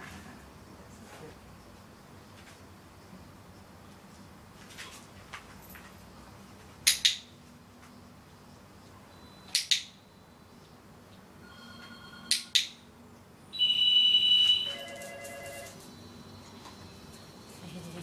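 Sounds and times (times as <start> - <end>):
loud high tone: 13.5 - 15.8.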